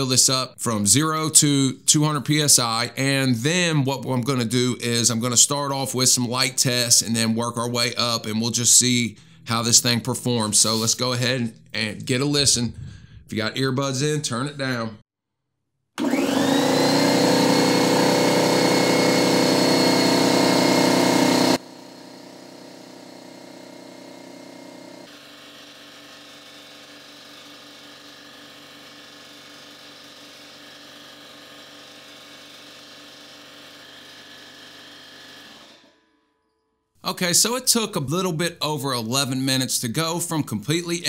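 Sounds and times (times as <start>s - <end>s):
air compressor running: 9.1s - 9.6s, 12.6s - 13.3s, 16.0s - 36.0s
compressor motor whine: 16.0s - 36.1s.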